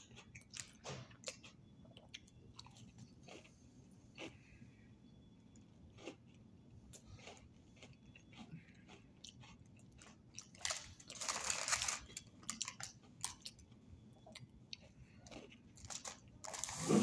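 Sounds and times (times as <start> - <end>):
cookie crunching and chewing: 0.0 - 16.9
plastic packet rustling: 10.6 - 12.6, 15.8 - 17.0.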